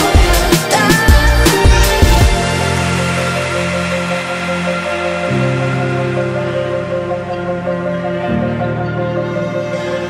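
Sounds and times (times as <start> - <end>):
heavy electronic beat: 0.0 - 7.3.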